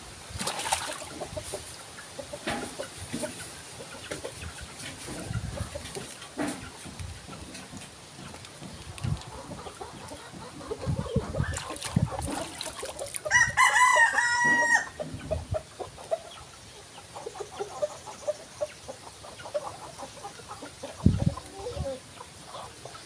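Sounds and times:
rooster crowing: 13.3s - 15.0s.

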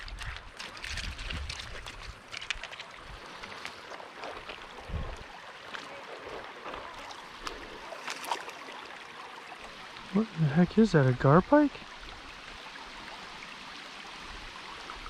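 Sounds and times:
small clicks and splashes: 0.0s - 10.1s
river water over gravel: 0.0s - 15.0s.

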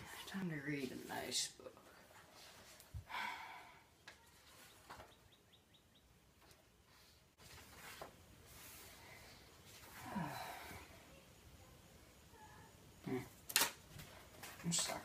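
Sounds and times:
faint soft rustles: 0.0s - 3.1s, 4.2s - 5.2s, 6.4s - 11.2s.

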